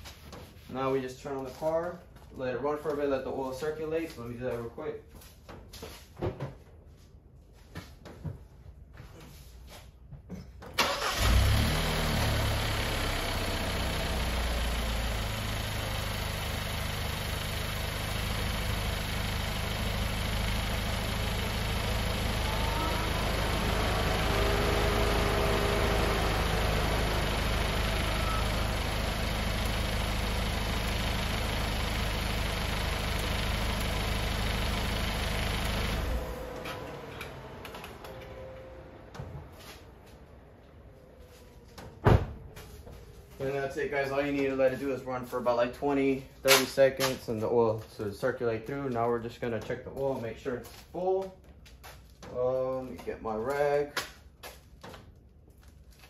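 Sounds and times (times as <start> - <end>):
car engine starting and idling: 10.7 - 42.5.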